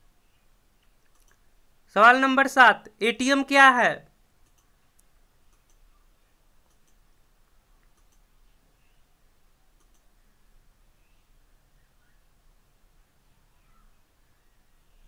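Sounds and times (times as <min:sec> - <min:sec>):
faint sharp clicks: 0:00.8 - 0:01.4, 0:04.4 - 0:05.9, 0:06.6 - 0:07.0, 0:07.8 - 0:08.3, 0:09.8 - 0:10.1.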